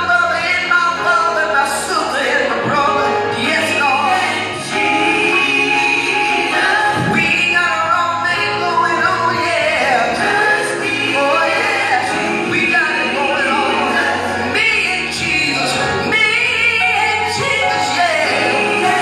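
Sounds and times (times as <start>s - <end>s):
man singing gospel song: 0.0s - 19.0s
musical accompaniment: 0.0s - 19.0s.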